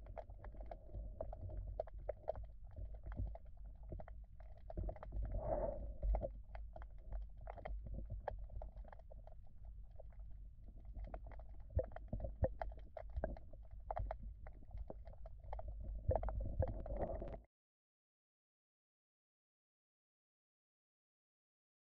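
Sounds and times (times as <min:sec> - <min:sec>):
underwater clicks and knocks: 0:00.0 - 0:17.4
muffled underwater river rumble: 0:00.0 - 0:17.5.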